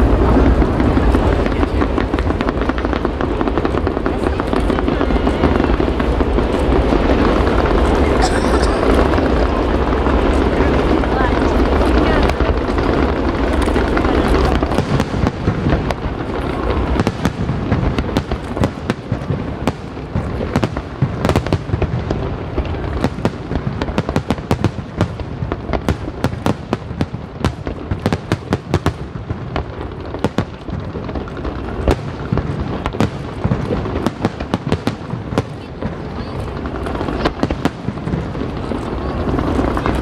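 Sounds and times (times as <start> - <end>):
fireworks crackling pops: 0.0 - 40.0
low rumble of firework bursts: 0.0 - 40.0.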